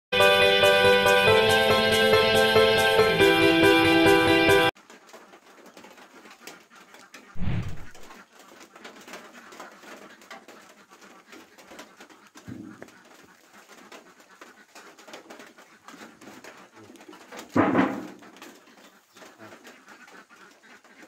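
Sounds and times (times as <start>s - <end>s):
doves cooing: 5.7s - 21.0s
thump: 7.4s - 8.0s, 17.6s - 18.2s.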